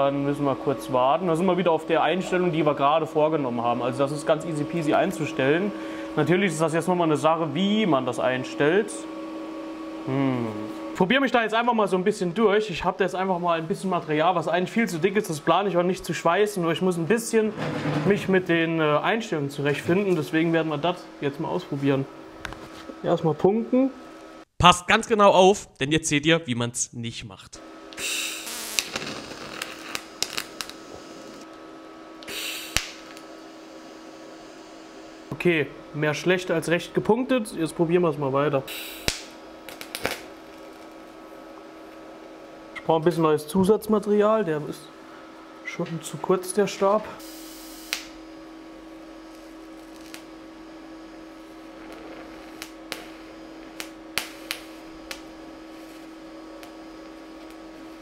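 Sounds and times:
welder humming: 0.0s - 24.5s, 27.6s - 58.0s
hissing welding arc: 27.9s - 31.4s, 32.2s - 33.3s, 38.7s - 41.0s, 47.2s - 48.2s, 49.3s - 50.4s, 51.3s - 58.0s.

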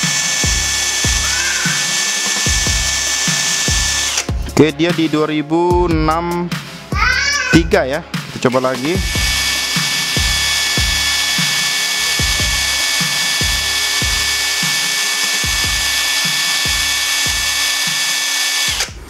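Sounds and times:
impact wrench whining: 0.0s - 4.4s, 8.5s - 19.0s.

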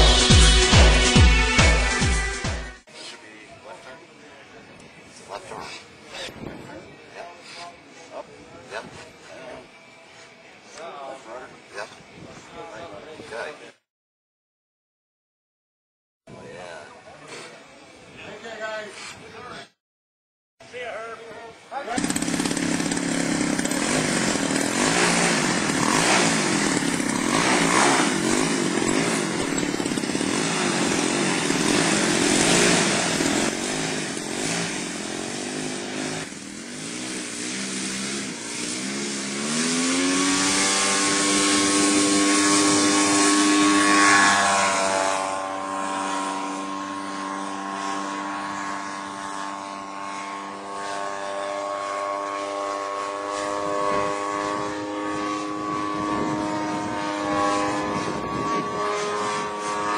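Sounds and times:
model airplane engine droning: 20.7s - 59.9s.

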